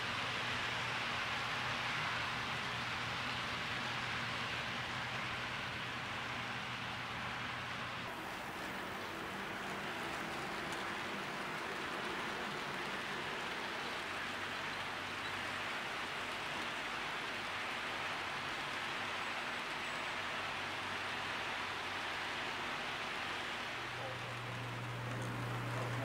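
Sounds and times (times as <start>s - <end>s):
model train wheels on rails: 0.0s - 26.0s.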